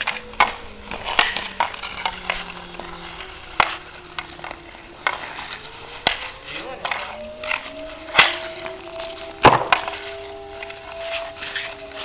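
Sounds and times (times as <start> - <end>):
hockey stick hitting puck: 0.0 - 12.0
skate blades scraping ice: 0.0 - 12.0.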